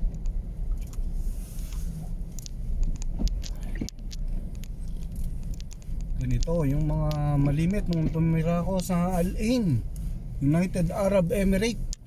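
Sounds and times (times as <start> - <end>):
vehicle rumble on snowy road: 0.0 - 12.0
light ticks and taps: 1.7 - 9.0
sharp click: 2.4 - 8.9.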